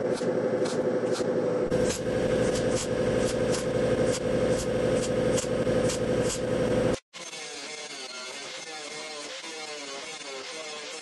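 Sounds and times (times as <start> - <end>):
welder arc crackling and buzzing: 0.6 - 7.0.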